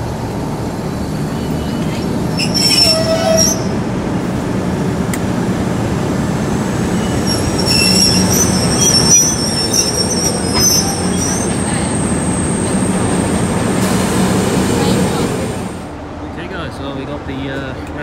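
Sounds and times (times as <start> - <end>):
train rumbling: 0.0 - 18.0
train wheels squealing: 1.1 - 3.8, 6.9 - 13.0.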